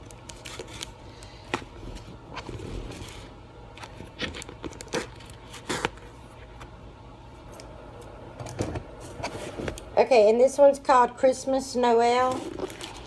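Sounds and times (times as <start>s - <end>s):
packaging crinkling and tearing: 0.0s - 6.2s, 12.2s - 13.0s.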